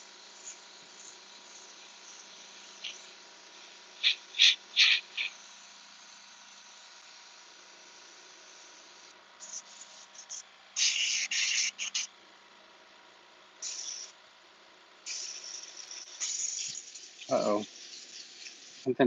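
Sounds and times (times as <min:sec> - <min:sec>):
airbrush spraying hissing bursts: 0:00.0 - 0:06.1, 0:08.1 - 0:12.1, 0:13.6 - 0:14.2, 0:15.0 - 0:18.9.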